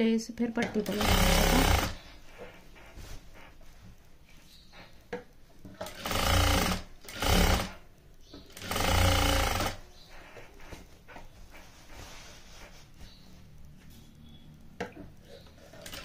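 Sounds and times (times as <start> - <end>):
sewing machine stitching: 0.6 - 2.1, 5.7 - 10.7, 15.5 - 16.0
cloth handling: 2.2 - 4.6, 10.1 - 14.1.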